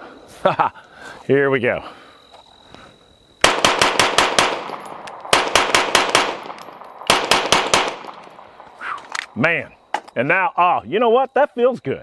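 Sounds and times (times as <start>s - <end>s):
rapid pistol shots: 3.4s - 8.8s.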